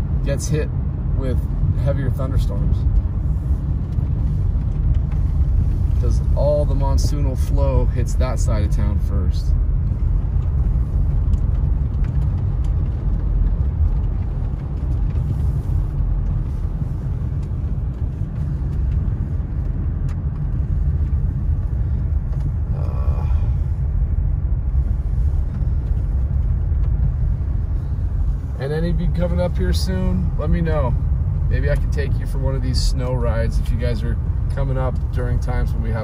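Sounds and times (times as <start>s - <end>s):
car cabin road and engine rumble: 0.0s - 36.0s
tyres on wet pavement: 9.5s - 36.0s.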